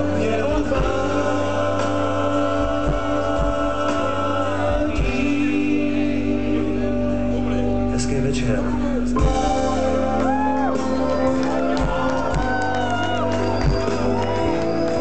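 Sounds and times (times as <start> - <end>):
voices singing a chord: 0.0 - 9.1
steady deep bass: 0.0 - 15.0.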